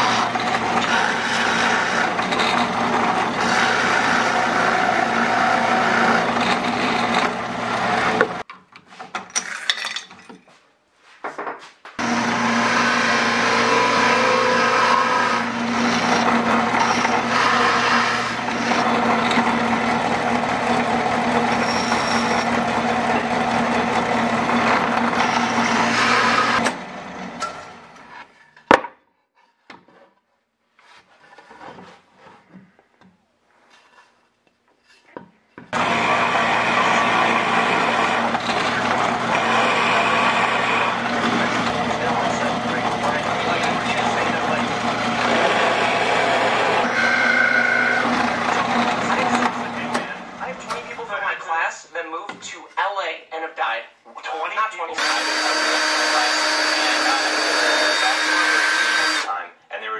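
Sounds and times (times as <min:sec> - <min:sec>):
drill bit cutting plywood: 0:00.0 - 0:08.4, 0:12.0 - 0:27.9, 0:35.7 - 0:51.0, 0:55.0 - 0:59.4
drill press motor hum: 0:00.0 - 0:08.4, 0:12.0 - 0:28.1, 0:35.7 - 0:51.0, 0:55.0 - 0:59.3.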